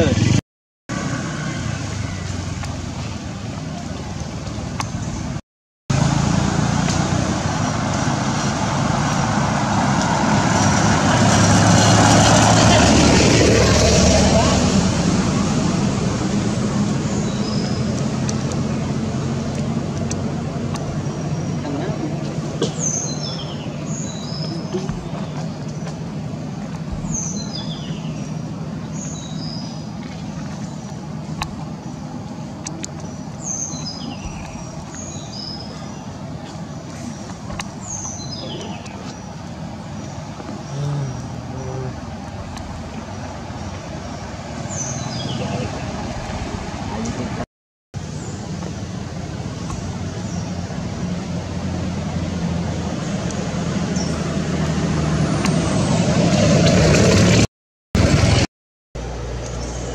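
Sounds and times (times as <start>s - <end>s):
low hum: 0.0s - 47.4s
vehicle engine and road noise: 0.0s - 59.9s.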